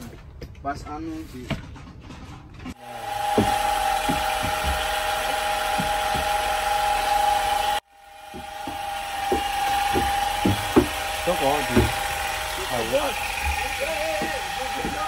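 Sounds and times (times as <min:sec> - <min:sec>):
paint sprayer pump whining: 0:02.7 - 0:15.0
stick knocking in a bucket: 0:08.3 - 0:12.0.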